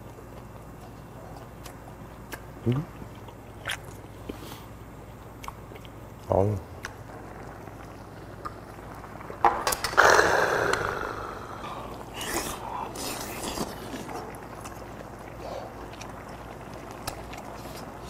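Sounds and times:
eating sounds: 0.0 - 4.5, 9.8 - 18.0
man's hissing exhale: 10.0 - 12.8.

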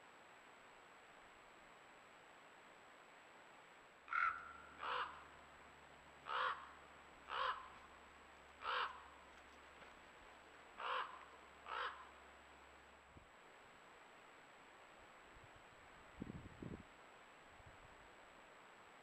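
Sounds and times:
crow cawing: 4.1 - 5.3, 6.2 - 7.8, 8.6 - 9.1, 10.8 - 12.2.

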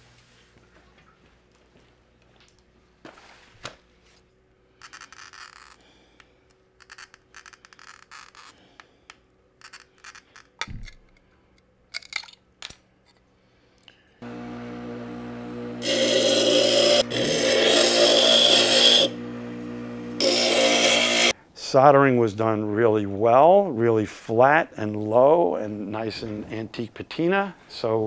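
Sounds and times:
glass cutter scoring glass: 4.8 - 5.8, 6.8 - 8.8, 9.6 - 10.8, 15.8 - 19.1, 20.2 - 21.3
glass pieces snapping off: 11.9 - 12.8.

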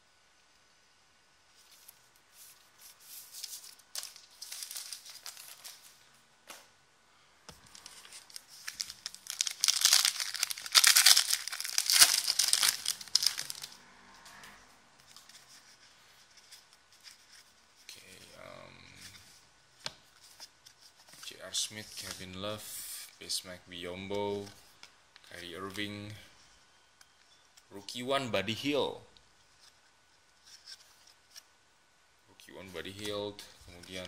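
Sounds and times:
cards rustling: 1.6 - 6.0, 7.5 - 13.8
wrapper crinkling and tearing: 3.3 - 5.9, 7.7 - 13.8.

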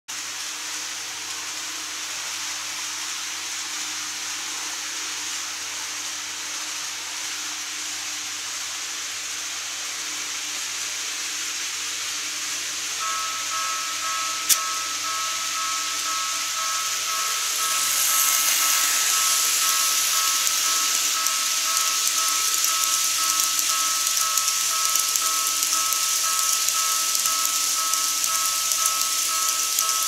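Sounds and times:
steady hiss: 0.2 - 30.0
level crossing warning bell: 12.9 - 30.0.

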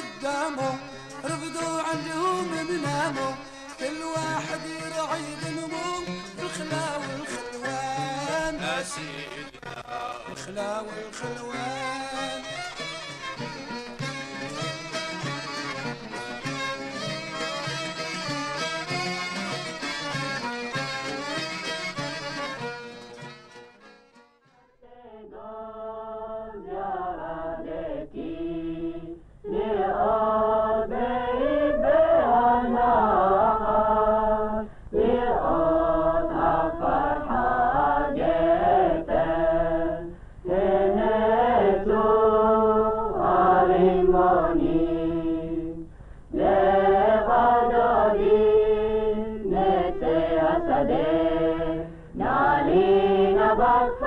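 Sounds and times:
voices chanting a melody: 24.8 - 45.8, 46.4 - 54.0
faint hum: 24.8 - 54.0.

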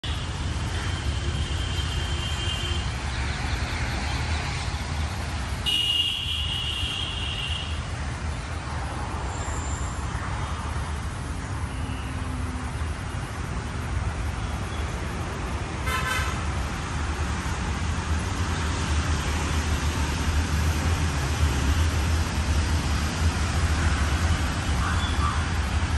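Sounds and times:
low rumble of road traffic: 0.0 - 25.9
car horns honking: 5.6 - 7.7, 15.8 - 16.4.

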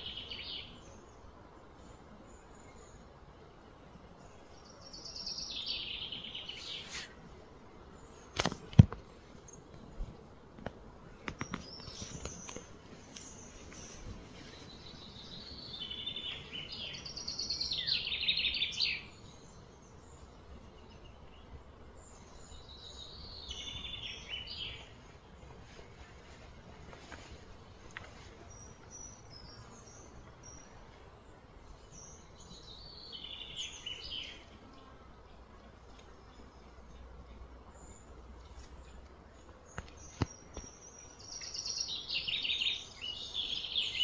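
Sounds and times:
songbirds singing: 0.0 - 44.0.

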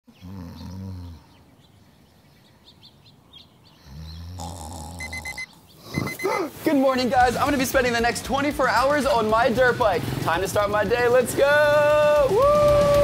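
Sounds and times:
person snoring: 0.2 - 1.3, 3.8 - 6.1
alarm clock beeping: 5.0 - 6.4.

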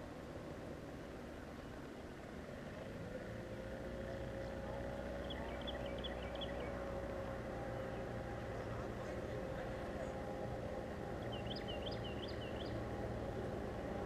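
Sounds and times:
distant engine humming: 0.0 - 14.0
high bird chirps: 5.2 - 6.8, 11.2 - 12.8.

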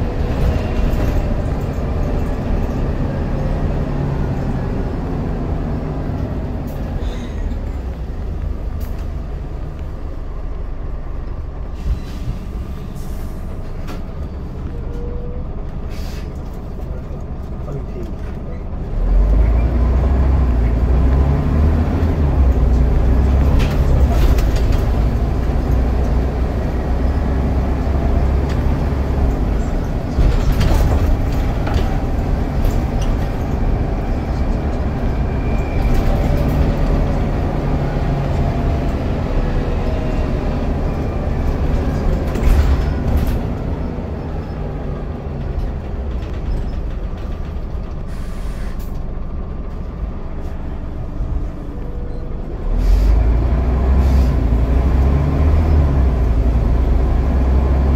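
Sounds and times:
bus diesel engine drone: 0.0 - 57.9
sharp knocks and rattles: 45.3 - 48.1.

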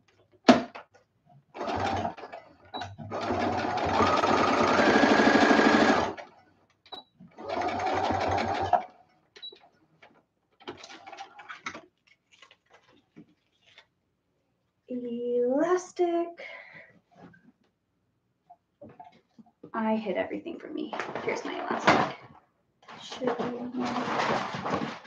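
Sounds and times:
electric sewing machine stitching: 1.6 - 6.3, 7.3 - 9.0, 23.8 - 25.0.

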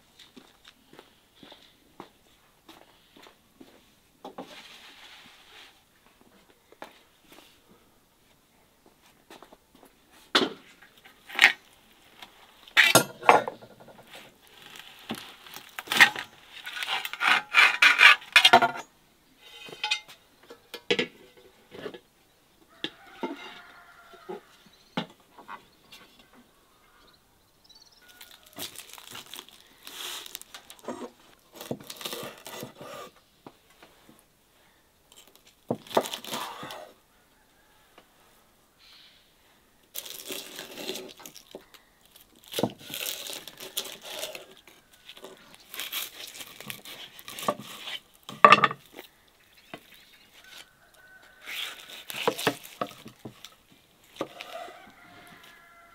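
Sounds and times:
tableware clinking and scraping: 12.8 - 13.8, 19.5 - 21.8, 48.3 - 48.9.

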